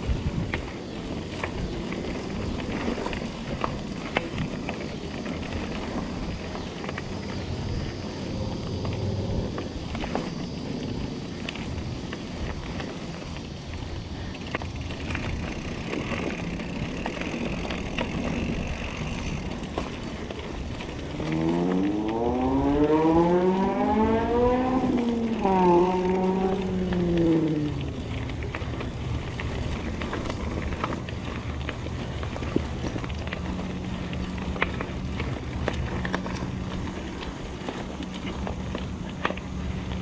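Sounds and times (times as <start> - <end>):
wind on microphone: 0.0 - 6.4
bike rattling: 0.0 - 40.0
bike tyre rumble on dirt: 0.0 - 40.0
droning tone rising in pitch: 7.0 - 12.0, 21.0 - 28.7.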